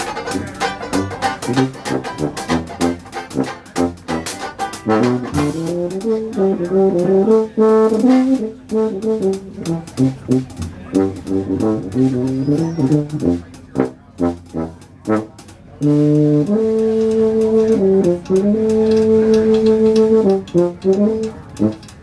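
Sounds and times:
banjo strumming: 0.0 - 12.8
jazz band playing: 0.0 - 22.0.

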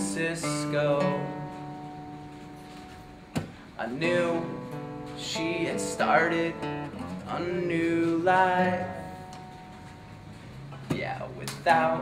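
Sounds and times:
man singing: 0.0 - 1.8, 3.8 - 9.4, 10.9 - 12.0
acoustic guitar strumming: 0.0 - 12.0.

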